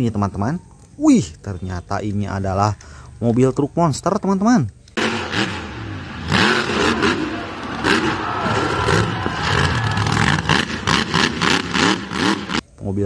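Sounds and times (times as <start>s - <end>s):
engine revving with rattle: 5.0s - 12.6s.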